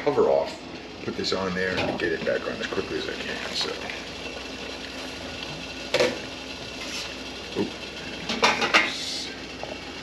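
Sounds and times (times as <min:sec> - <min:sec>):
water boiling: 0:00.0 - 0:10.0
metal cookware clanking: 0:08.2 - 0:09.0.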